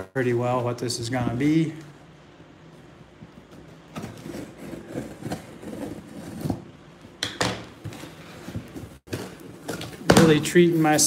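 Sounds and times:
cardboard scraping and rustling: 3.4 - 6.7.

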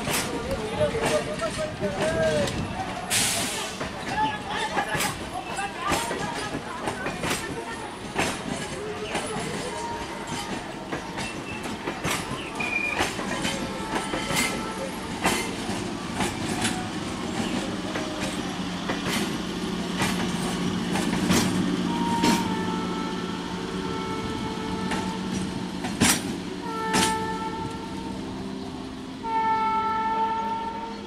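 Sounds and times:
train wheels clicking over rail joints: 0.0 - 28.0
train low hum: 0.0 - 31.0
train horn: 13.4 - 15.4, 21.8 - 25.6, 26.6 - 28.4, 29.2 - 31.0.

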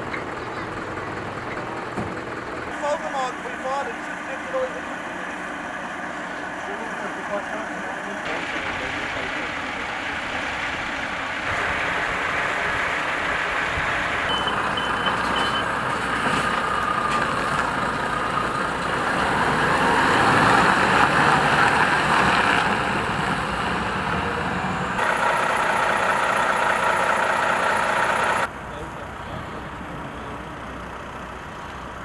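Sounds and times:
diesel truck engine running: 0.0 - 32.0
high reversing beeps: 14.3 - 15.8.

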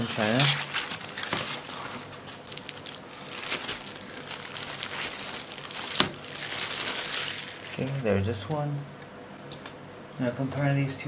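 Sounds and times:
plastic packaging crinkling: 0.0 - 8.2.

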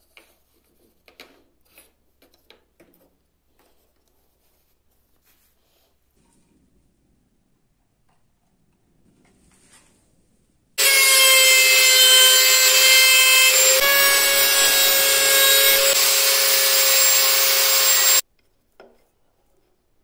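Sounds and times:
router whining cutting wood: 10.8 - 18.2.

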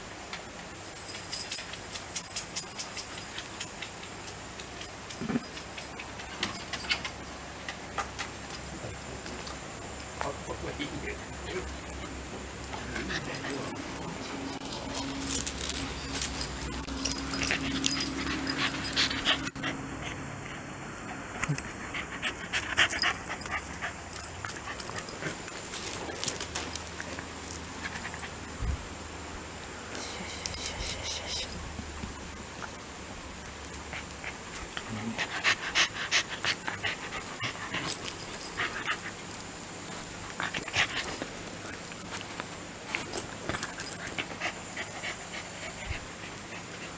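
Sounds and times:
dog panting: 12.7 - 14.6, 16.4 - 25.4, 33.7 - 46.9.

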